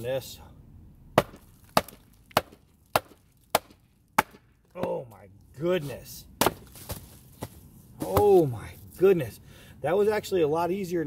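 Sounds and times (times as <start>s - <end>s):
wood splitting: 1.2s - 5.2s, 6.4s - 8.5s.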